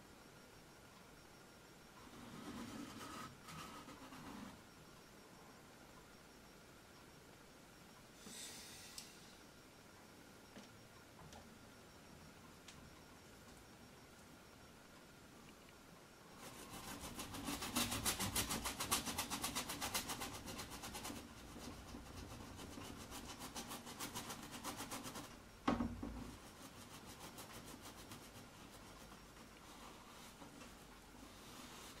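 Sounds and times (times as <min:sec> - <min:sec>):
paintbrush scrubbing on canvas: 0:26.4 - 0:32.0.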